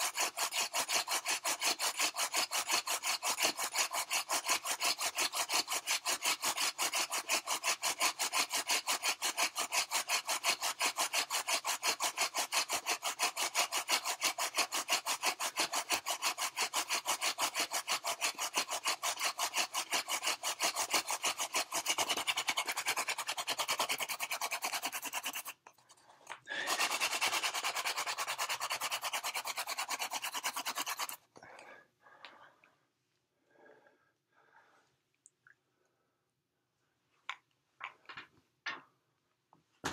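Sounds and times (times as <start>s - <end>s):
hand drill grinding in wooden board: 0.0s - 25.7s, 26.5s - 31.3s.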